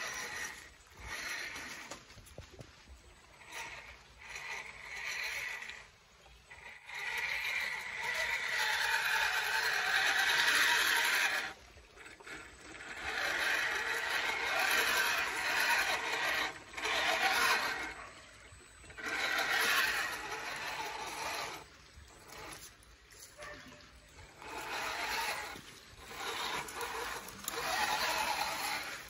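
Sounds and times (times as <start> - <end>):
electric motor whirring: 0.0 - 29.0
tyres scraping on rocks: 0.0 - 29.0.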